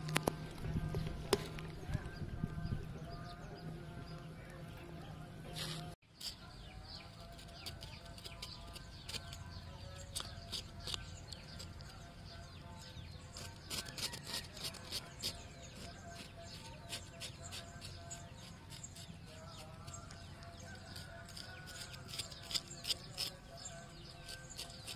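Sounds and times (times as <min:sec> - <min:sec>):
birds chirping: 0:00.0 - 0:24.9
knife cutting on wooden board: 0:20.9 - 0:23.5.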